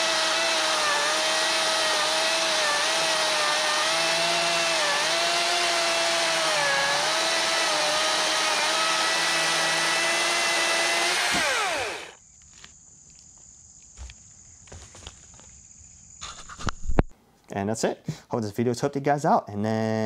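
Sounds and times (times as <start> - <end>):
chainsaw motor whine: 0.0 - 12.2.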